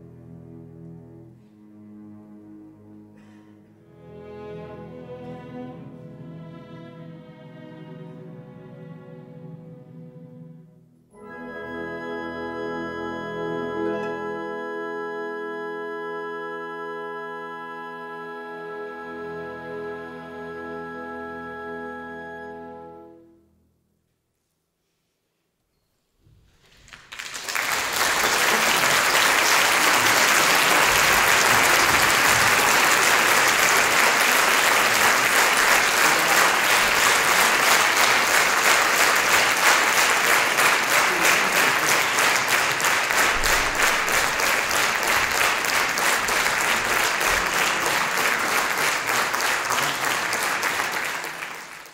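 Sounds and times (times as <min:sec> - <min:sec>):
audience applauding: 0:26.6 - 0:51.9.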